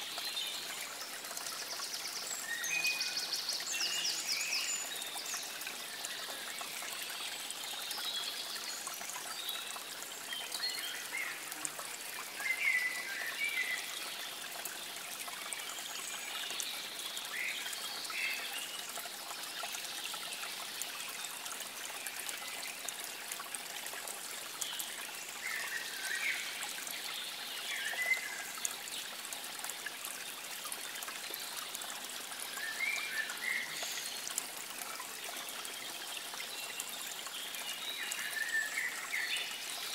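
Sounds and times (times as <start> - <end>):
water trickling: 0.0 - 39.9.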